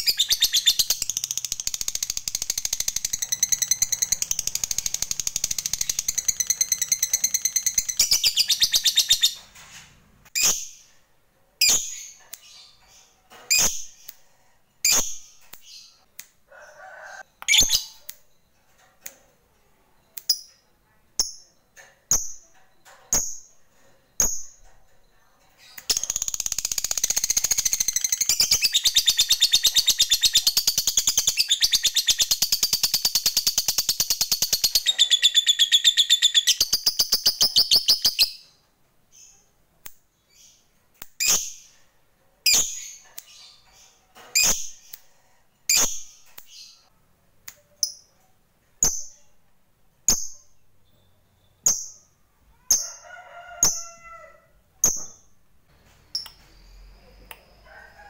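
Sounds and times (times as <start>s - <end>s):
lovebird chirping: 0.0s - 9.5s, 19.9s - 39.6s, 50.1s - 53.0s, 54.8s - 58.0s.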